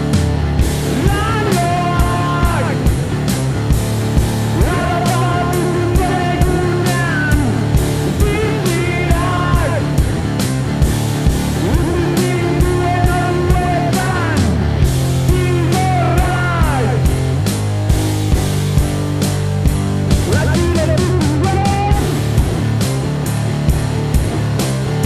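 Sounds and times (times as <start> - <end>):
drum kit playing: 0.0 - 25.0
electric guitar: 0.0 - 25.0
person singing: 0.9 - 2.9, 4.6 - 10.0, 11.6 - 14.6, 15.2 - 17.1, 20.3 - 22.2.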